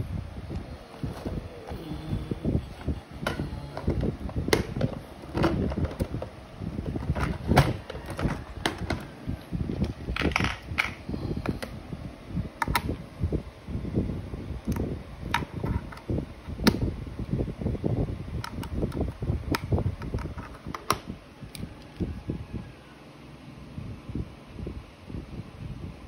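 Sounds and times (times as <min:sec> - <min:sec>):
low rumble: 0:00.0 - 0:14.3.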